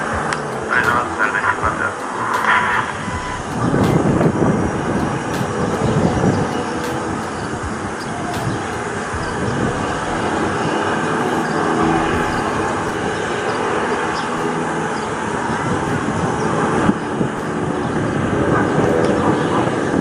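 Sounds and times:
jet engines humming: 0.0s - 20.0s.

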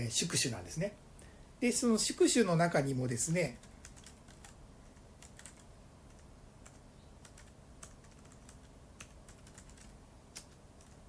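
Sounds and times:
faint keyboard typing: 3.5s - 11.0s.

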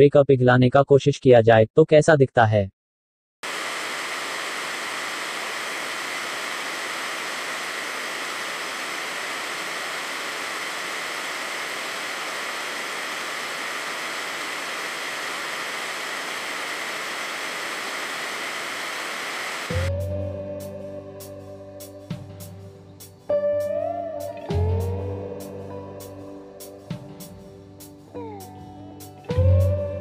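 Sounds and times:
blowtorch flame hissing: 3.4s - 19.9s.

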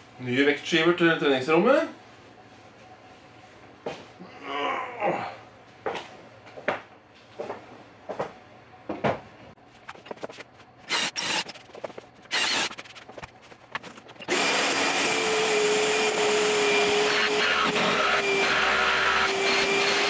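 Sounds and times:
shop vacuum running: 9.7s - 20.0s
motor whine: 10.8s - 20.0s.

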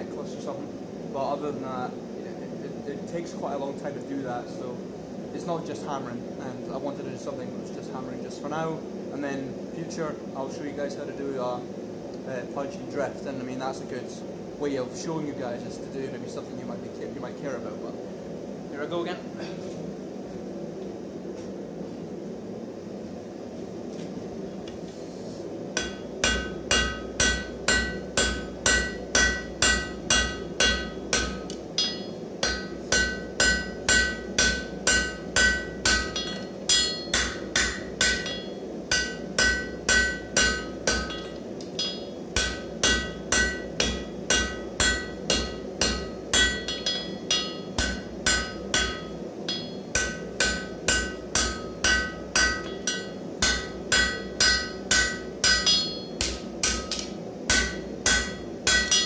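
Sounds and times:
hammer striking hot metal on anvil: 25.8s - 59.0s.

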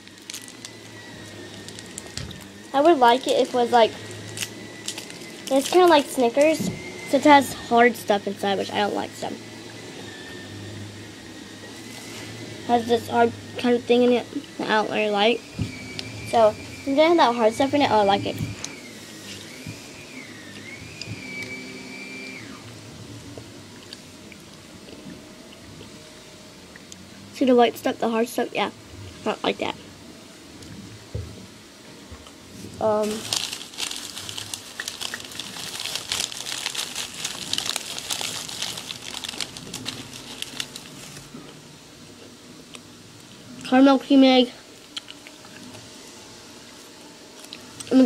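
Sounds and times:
plastic bag crinkling: 0.0s - 6.6s, 32.9s - 41.4s
electric motor whine: 0.0s - 29.1s, 32.5s - 41.8s.

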